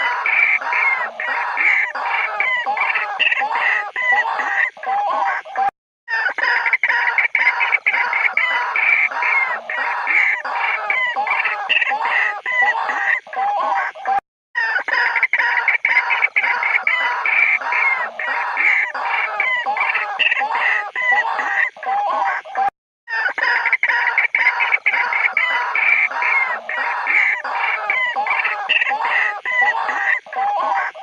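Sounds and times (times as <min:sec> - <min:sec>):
waterhen calls: 0:06.2 - 0:13.0, 0:14.6 - 0:21.8, 0:23.1 - 0:31.0.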